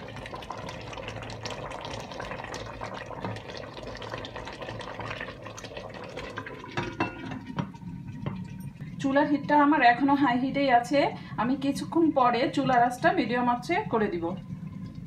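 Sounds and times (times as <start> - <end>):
curry bubbling and spitting: 0.0 - 9.0
glass lid knocks: 6.8 - 7.7.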